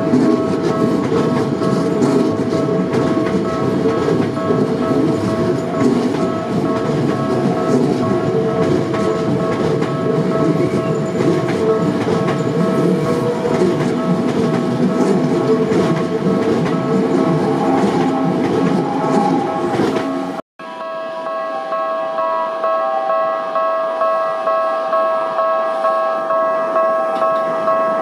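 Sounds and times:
train wheels clattering over rails: 0.0s - 20.4s
level crossing warning bell: 0.0s - 28.0s.

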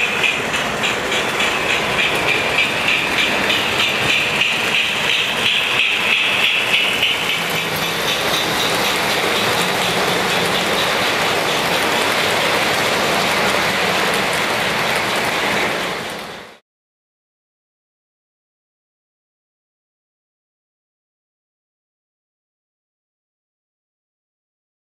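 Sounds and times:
toy train cars rattling: 0.0s - 16.2s
toy locomotive clicking whir: 0.2s - 14.1s.

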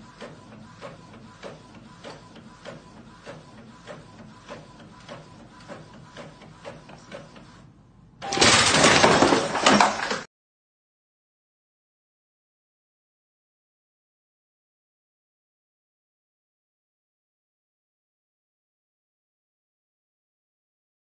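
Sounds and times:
printer clicking: 0.0s - 7.6s
faint paper feed whine: 0.0s - 7.8s.

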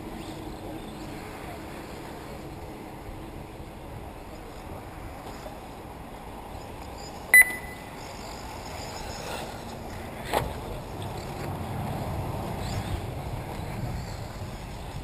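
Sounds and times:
short loud electronic beep: 7.4s - 7.9s.

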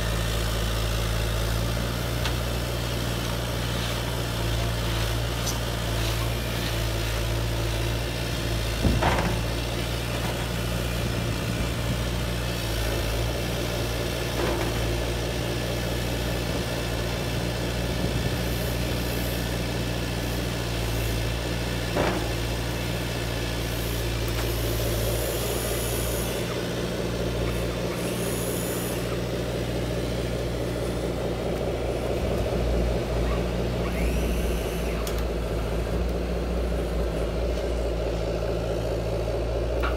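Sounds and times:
toy excavator humming: 33.3s - 36.7s.

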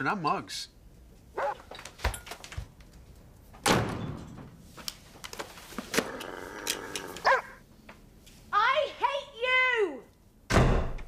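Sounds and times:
door slamming: 10.5s - 11.0s.

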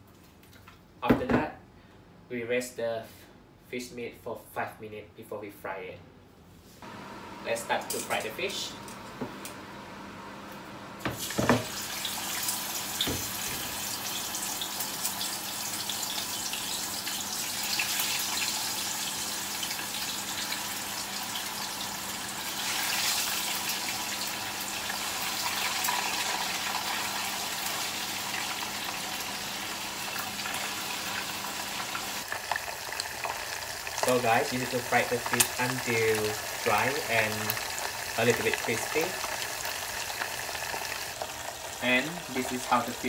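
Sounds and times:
fish frying in hot oil: 11.1s - 43.0s.

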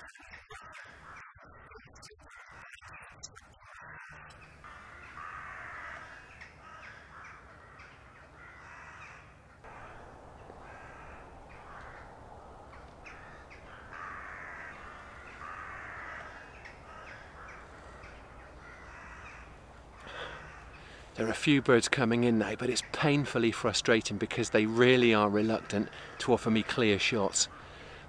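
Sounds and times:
crows cawing: 0.0s - 28.0s
low rumble: 9.7s - 15.3s.

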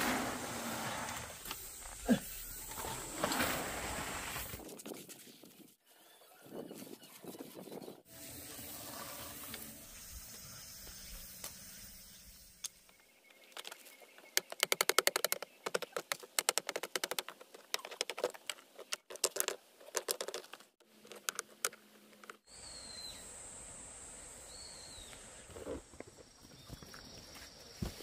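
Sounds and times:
steady high hiss: 8.1s - 12.8s, 22.5s - 25.7s
bird chirp: 10.4s - 16.4s, 22.4s - 23.3s, 24.4s - 25.3s, 26.2s - 28.0s.

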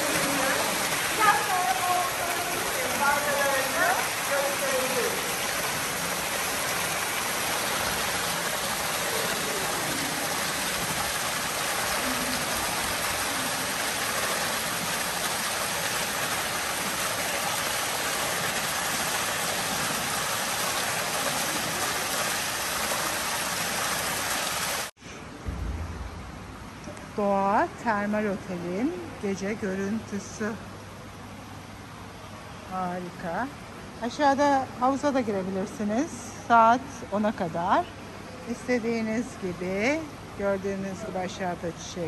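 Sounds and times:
water pouring into a pool: 0.0s - 24.9s.

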